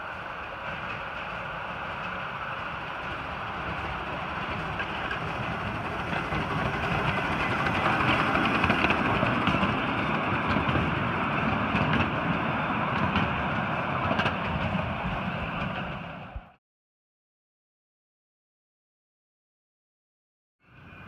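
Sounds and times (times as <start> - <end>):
wheels rumbling on rails: 0.0 - 16.6, 20.6 - 21.0.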